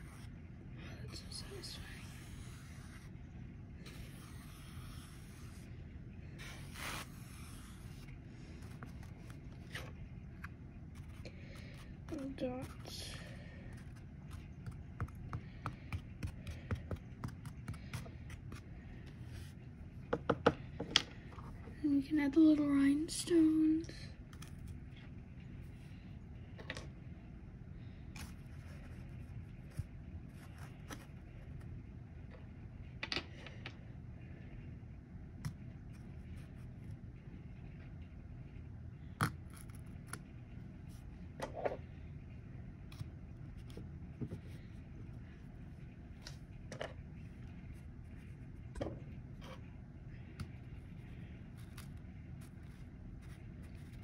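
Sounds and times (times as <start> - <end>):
low room hum: 0.0 - 54.0
pencil scraping through sand: 6.4 - 8.1.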